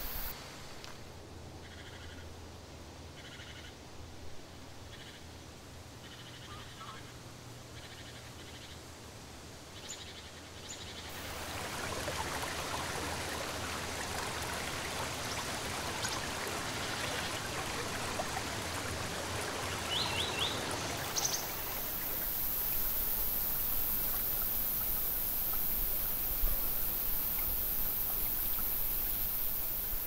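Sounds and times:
creek water rushing: 0.0 - 0.8, 11.1 - 30.0.

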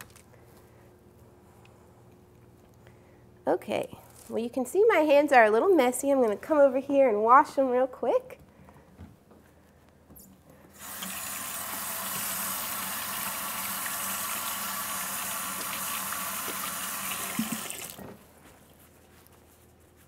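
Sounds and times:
faucet running into metal sink: 10.8 - 18.0.

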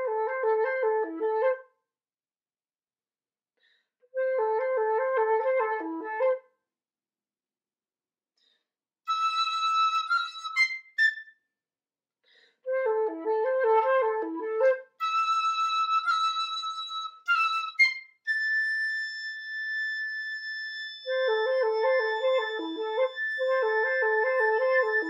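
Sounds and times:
flutes and piccolo playing: 4.2 - 6.4, 9.1 - 11.3, 12.7 - 25.0.

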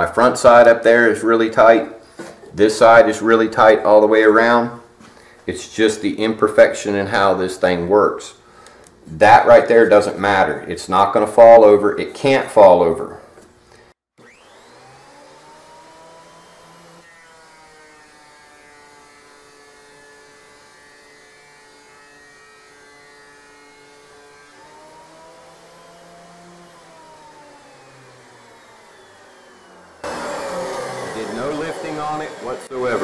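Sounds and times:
thickness planer motor whine: 14.2 - 33.0.

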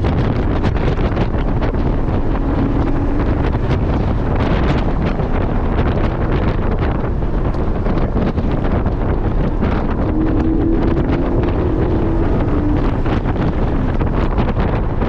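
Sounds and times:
car engine pulling: 0.0 - 15.0
road tyre and wind rumble: 0.0 - 15.0.

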